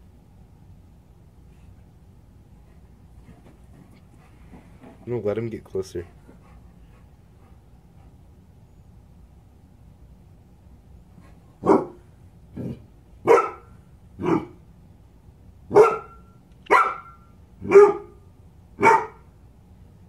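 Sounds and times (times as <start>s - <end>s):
dog barking: 11.6s - 12.0s, 13.2s - 14.6s, 15.7s - 18.2s, 18.8s - 19.3s.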